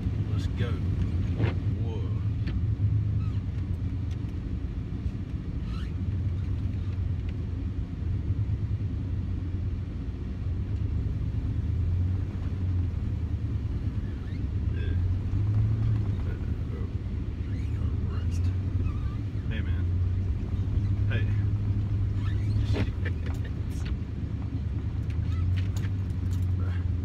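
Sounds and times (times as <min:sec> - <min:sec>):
truck engine low rumble: 0:00.0 - 0:27.0.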